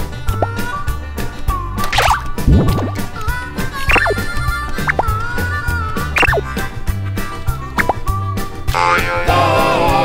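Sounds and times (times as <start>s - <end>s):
upbeat children's music: 0.0s - 10.0s
wavering sound effect: 3.9s - 4.2s, 6.2s - 6.4s.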